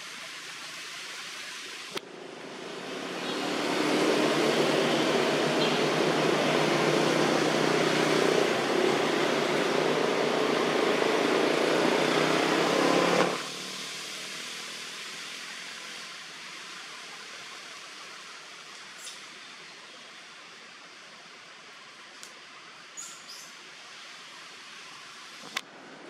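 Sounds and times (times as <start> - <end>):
faint hiss: 0.0 - 26.0
steady rushing noise: 1.8 - 16.7.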